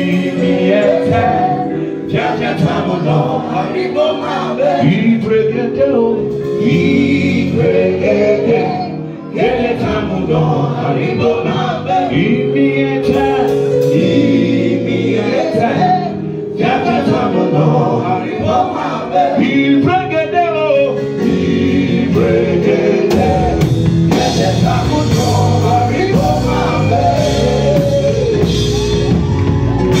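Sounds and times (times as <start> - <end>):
drum kit beat: 0.0 - 1.6, 11.6 - 20.0, 21.0 - 30.0
man singing lead: 0.0 - 29.2
backing vocalists singing: 0.0 - 30.0
keyboard: 0.0 - 30.0.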